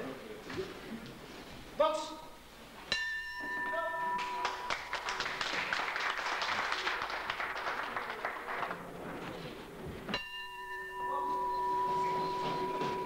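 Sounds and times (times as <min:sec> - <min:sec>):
crowd clapping: 0:04.2 - 0:09.0.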